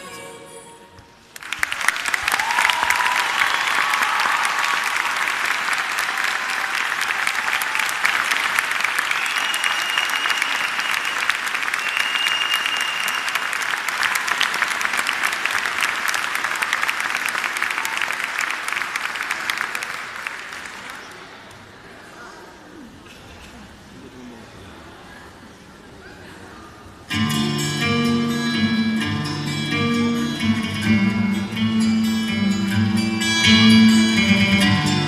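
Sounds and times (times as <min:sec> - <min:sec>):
audience applauding: 0:01.3 - 0:21.3
high whistles: 0:09.0 - 0:13.5.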